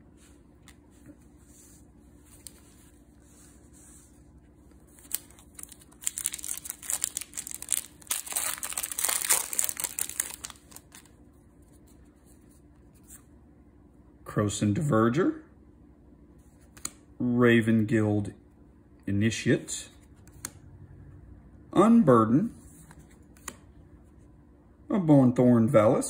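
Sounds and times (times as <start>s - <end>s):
wrapper tearing and crinkling: 5.0s - 11.1s.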